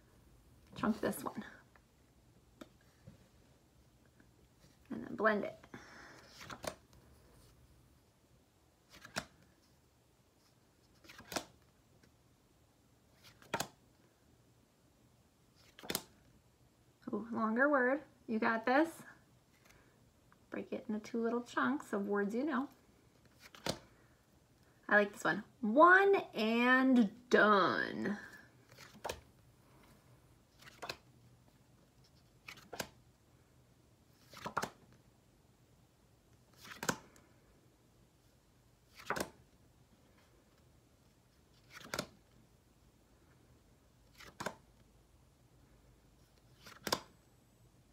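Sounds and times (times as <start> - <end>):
paper flash cards flipping: 6.2 - 6.8, 8.8 - 9.6, 10.9 - 12.1, 13.2 - 13.8, 15.6 - 16.2, 23.2 - 23.9, 28.7 - 29.2, 30.5 - 31.1, 32.0 - 33.0, 34.2 - 35.0, 36.5 - 37.2, 38.9 - 39.4, 41.5 - 42.4, 44.0 - 44.8, 46.4 - 47.2.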